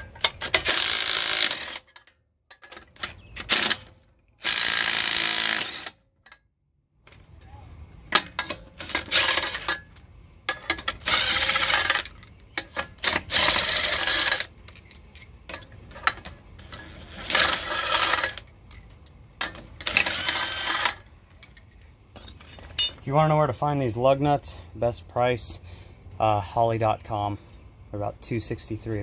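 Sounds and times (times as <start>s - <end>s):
impact gun spinning lug nuts: 0.1s - 2.0s, 10.6s - 14.6s
metal lug nuts clinking: 8.1s - 23.2s.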